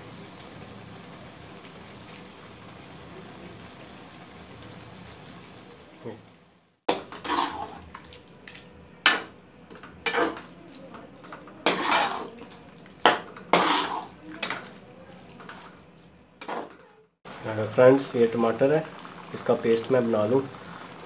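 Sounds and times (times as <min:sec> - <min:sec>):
metal ladle clanking on pan: 0:09.1 - 0:10.4.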